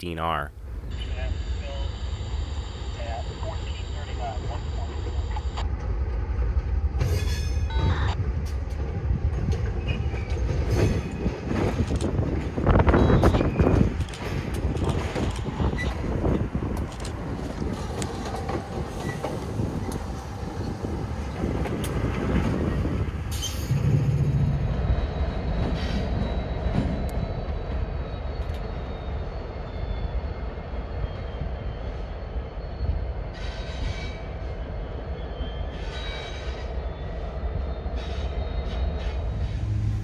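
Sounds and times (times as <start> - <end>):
diesel locomotive engine rumble: 0.0 - 40.0
train wheels clicking on rail joints: 5.3 - 24.0
train wheels squealing: 9.8 - 21.5, 22.3 - 40.0.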